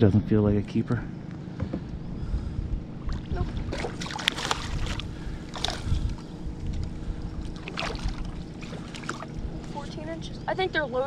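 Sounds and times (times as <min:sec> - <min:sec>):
wind rumbling on microphone: 0:01.6 - 0:11.0
water splashing against a kayak hull: 0:03.0 - 0:10.1.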